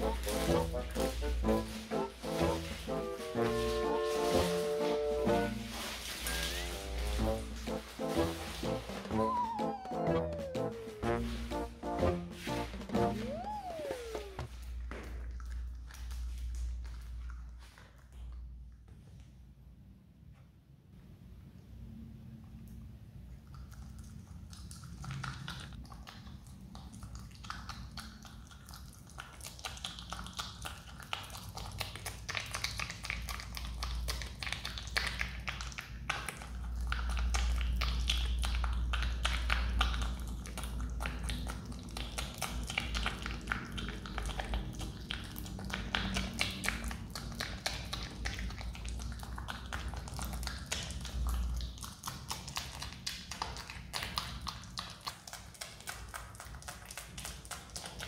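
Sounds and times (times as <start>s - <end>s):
animal chewing banana: 23.3s - 58.0s.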